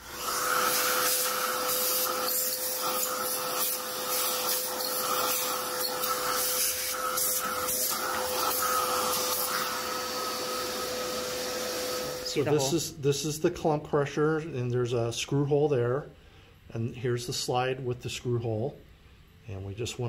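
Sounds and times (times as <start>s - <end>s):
vacuum cleaner running: 0.0s - 12.8s.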